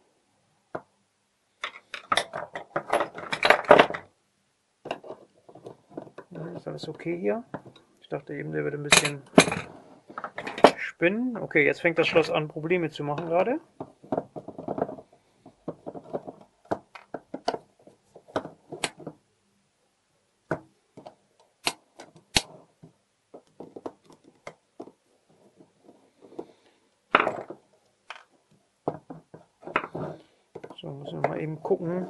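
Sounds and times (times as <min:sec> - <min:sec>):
metal parts clattering: 0:01.6 - 0:04.0.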